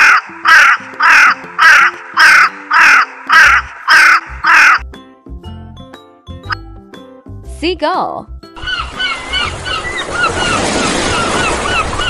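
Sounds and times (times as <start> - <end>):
raven cawing: 0.0 - 4.8.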